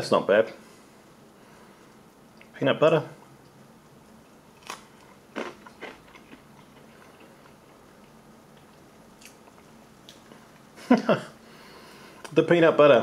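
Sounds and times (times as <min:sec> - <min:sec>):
quiet chewing: 0:01.6 - 0:02.5, 0:03.2 - 0:10.8
cracker crunching: 0:03.4 - 0:10.7.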